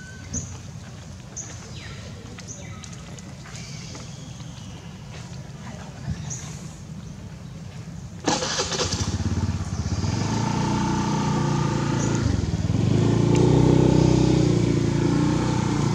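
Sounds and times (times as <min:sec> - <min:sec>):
motor vehicle engine running: 0:08.8 - 0:15.9.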